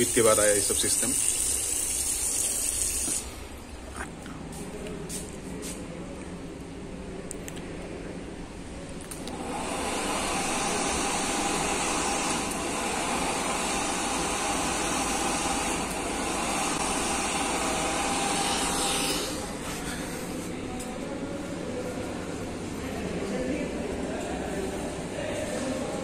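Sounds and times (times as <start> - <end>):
hand dryer blowing air: 9.3 - 20.4.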